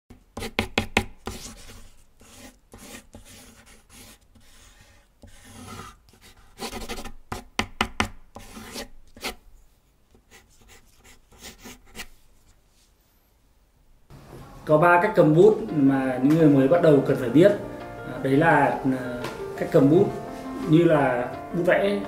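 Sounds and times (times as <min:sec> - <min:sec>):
pencil scratching on paper: 0:00.4 - 0:09.4, 0:10.1 - 0:12.3.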